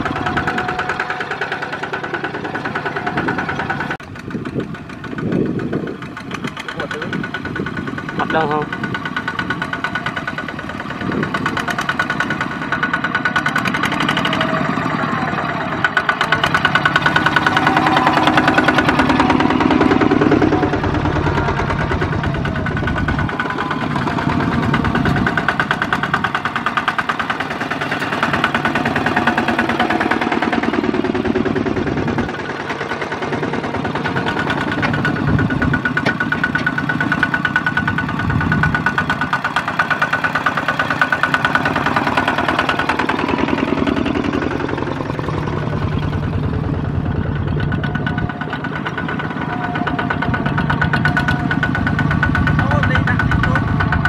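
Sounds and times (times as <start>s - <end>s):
small tractor engines under load: 0.0s - 54.0s.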